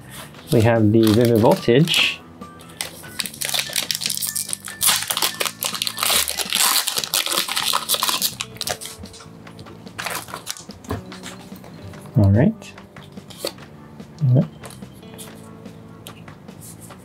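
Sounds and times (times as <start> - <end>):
foil wrapper tearing and crinkling: 1.0 - 2.0, 2.7 - 9.2, 10.0 - 10.7.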